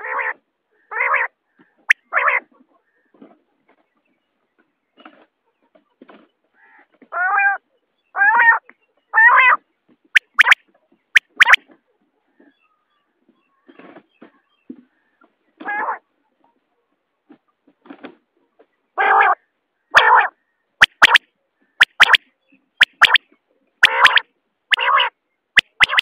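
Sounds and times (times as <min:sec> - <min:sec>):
quail calling: 0:10.2 - 0:10.6, 0:11.2 - 0:11.6, 0:19.0 - 0:21.2, 0:21.8 - 0:22.2, 0:22.8 - 0:23.2, 0:23.8 - 0:26.0.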